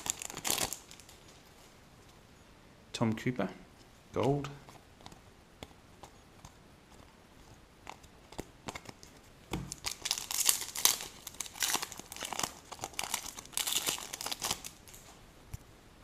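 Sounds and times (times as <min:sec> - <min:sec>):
foil pack crinkling: 0:00.0 - 0:01.2, 0:07.8 - 0:15.1.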